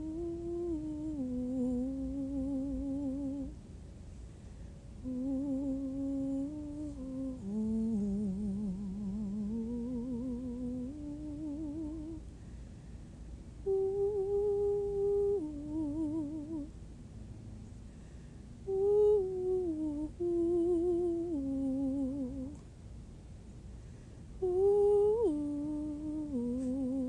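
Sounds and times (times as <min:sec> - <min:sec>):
woman humming with vibrato: 0:00.0 - 0:03.6, 0:05.0 - 0:12.2, 0:13.6 - 0:16.7, 0:18.6 - 0:22.6, 0:24.4 - 0:27.0.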